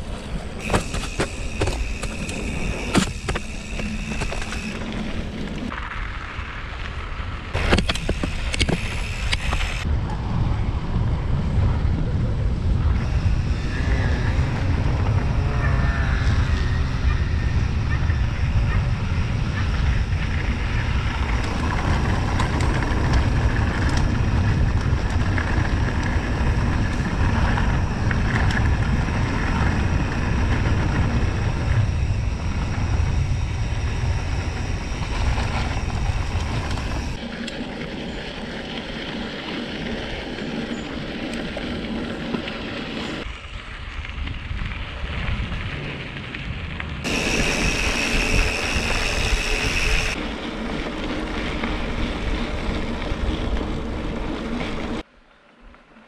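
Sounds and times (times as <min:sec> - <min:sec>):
tyres rolling over dirt: 0:00.0 - 0:09.9, 0:19.4 - 0:43.2, 0:44.1 - 0:55.0
wind buffeting microphone: 0:00.0 - 0:55.1.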